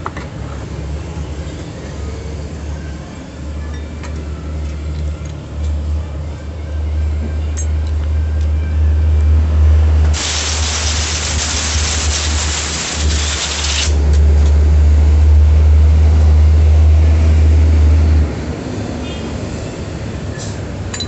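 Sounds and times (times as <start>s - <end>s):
compressed air blow gun hiss: 10.2s - 13.9s.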